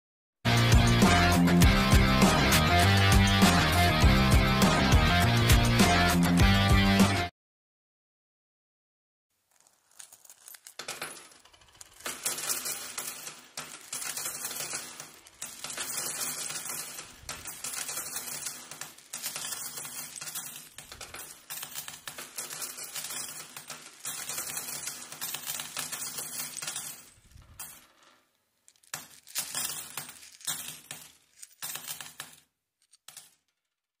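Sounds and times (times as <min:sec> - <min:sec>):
coins pouring and clinking: 0:09.5 - 0:33.8.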